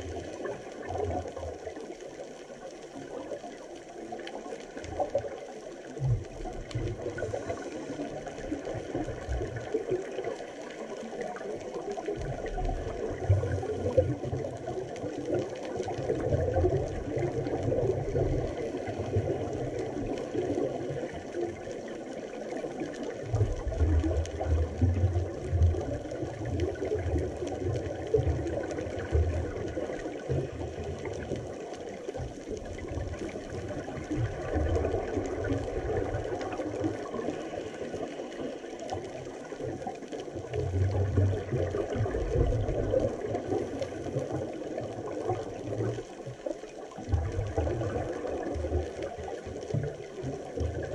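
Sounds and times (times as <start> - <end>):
muffled underwater water noise: 0.0 - 50.9.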